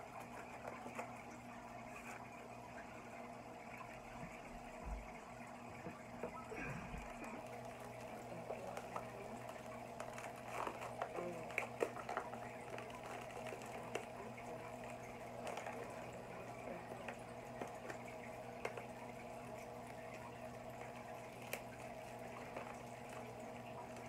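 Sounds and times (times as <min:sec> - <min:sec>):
aquarium pump hum: 0:00.0 - 0:24.0
aquarium water bubbling: 0:00.0 - 0:24.0.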